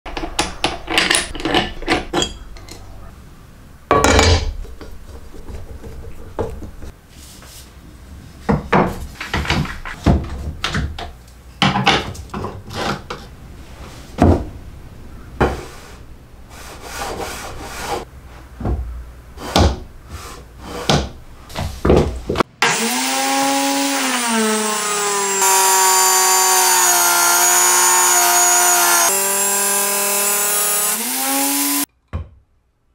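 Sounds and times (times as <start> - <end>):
drum sander motor whine: 22.7 - 31.8.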